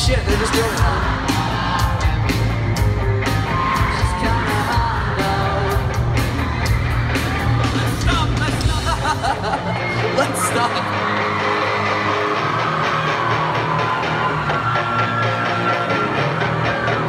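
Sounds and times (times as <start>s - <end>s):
steady drum beat: 0.0s - 9.9s
electric guitars: 0.0s - 17.0s
person singing: 3.6s - 6.3s.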